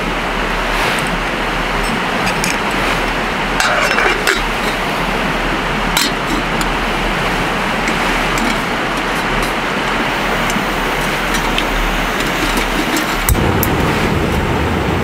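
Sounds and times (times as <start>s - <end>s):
steady rushing noise: 0.0s - 15.0s
metal kettle clinking on stove: 3.6s - 5.0s, 5.9s - 6.8s, 7.8s - 13.7s.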